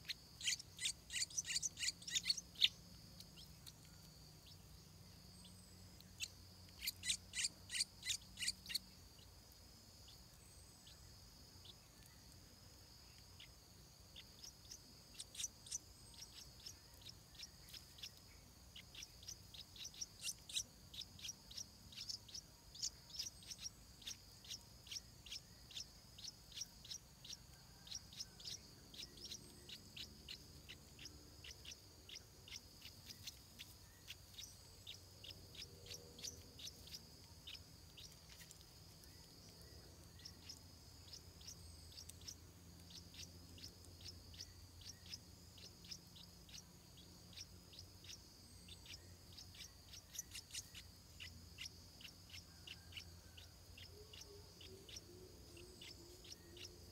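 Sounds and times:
nestlings begging cheeps: 0.0 - 3.7, 6.1 - 8.9, 14.2 - 18.1, 18.7 - 46.6, 53.8 - 56.9.

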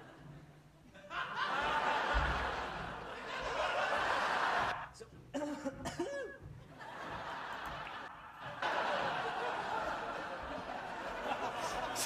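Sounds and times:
crowd laughing: 0.9 - 5.0, 6.7 - 12.0.

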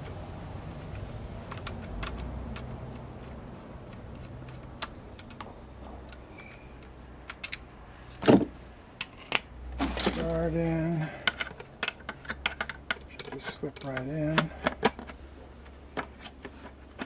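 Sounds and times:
screwdriver clicks and ticks: 0.9 - 3.1.

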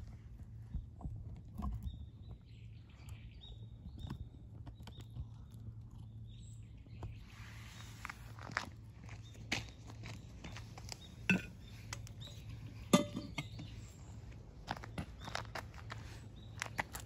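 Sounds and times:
steady low hum: 0.0 - 17.0
small bird chirping: 1.6 - 8.4, 9.0 - 17.0
footsteps on gritty asphalt: 7.1 - 12.7, 13.4 - 17.0.

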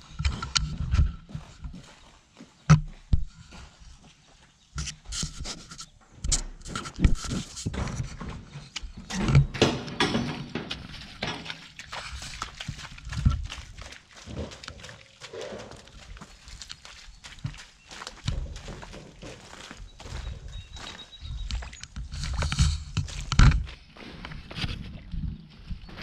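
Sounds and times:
hooves in wet mud: 0.0 - 26.0
calf knocking and rubbing microphone: 4.8 - 9.6
cattle breathing: 10.7 - 21.0.

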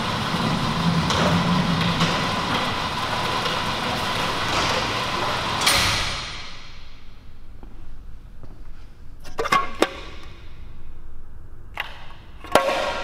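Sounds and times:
garage door rolling down: 0.0 - 7.2.

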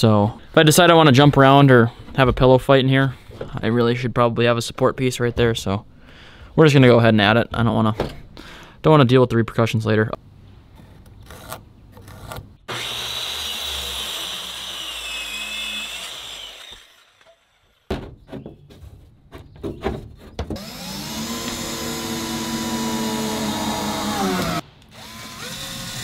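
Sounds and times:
power tool motor spinning: 12.7 - 17.9, 20.6 - 26.0
saw cutting wood with whine: 12.7 - 17.9, 20.6 - 26.0.

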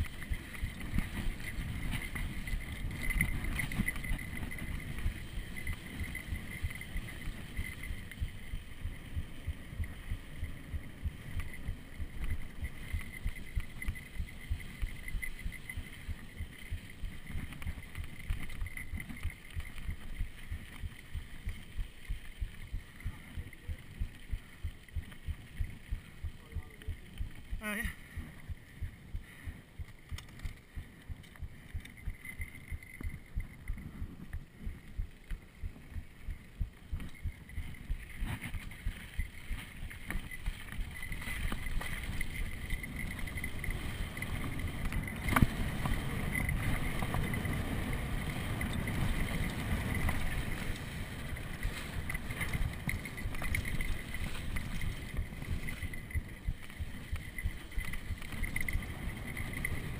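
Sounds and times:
bike rattling: 0.0 - 59.9
tyres rumbling over dirt: 35.4 - 59.9.

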